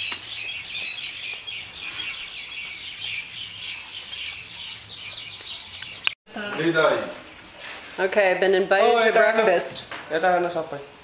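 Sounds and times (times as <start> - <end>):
birds chirping: 0.0 - 7.8.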